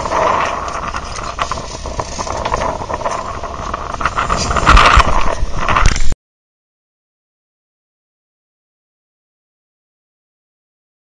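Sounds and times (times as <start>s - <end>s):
boat on open water: 0.0s - 6.1s
wind on microphone: 0.0s - 6.2s.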